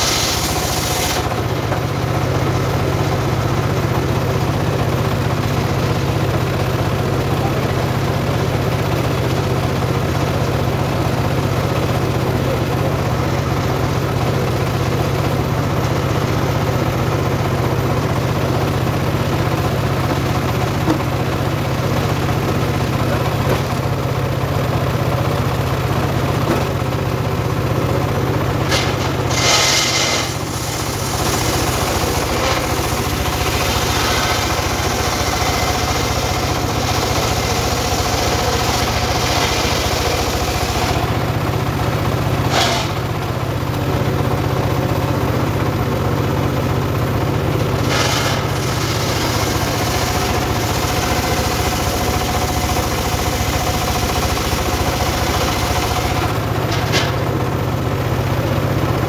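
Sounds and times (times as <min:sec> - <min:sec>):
saw blade ripping log: 0:00.0 - 0:01.5, 0:28.7 - 0:41.2, 0:42.5 - 0:43.0, 0:47.8 - 0:57.2
engine running: 0:00.0 - 0:59.0.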